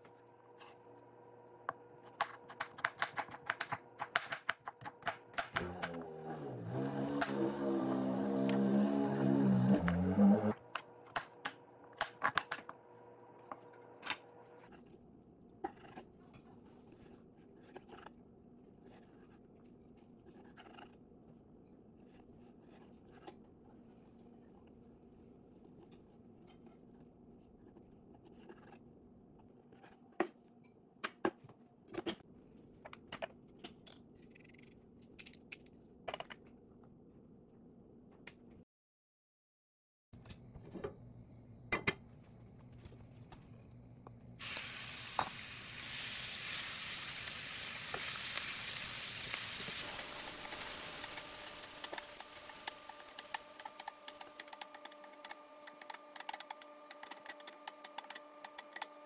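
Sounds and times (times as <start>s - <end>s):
knife chopping on wooden board: 2.1s - 6.0s.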